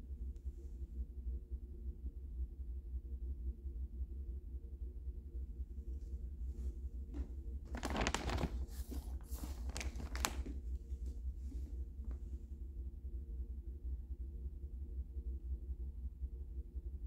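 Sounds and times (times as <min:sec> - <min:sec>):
steady low hum: 0:00.0 - 0:17.0
plastic wrapping crinkling: 0:07.2 - 0:11.0.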